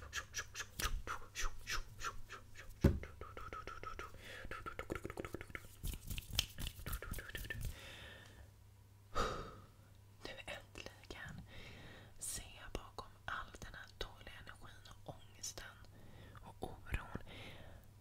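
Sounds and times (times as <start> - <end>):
person whispering: 0.0 - 5.8, 10.2 - 11.5, 12.2 - 17.3
mouth clicks: 0.0 - 7.8.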